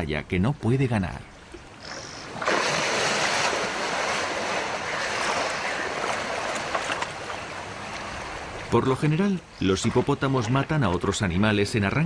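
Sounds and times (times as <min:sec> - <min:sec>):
hippo splashing through water: 0:01.8 - 0:08.7.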